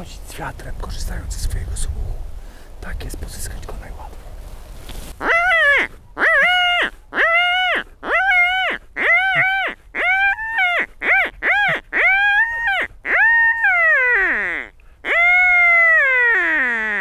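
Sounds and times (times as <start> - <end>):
predator call squeals: 5.2 - 17.0.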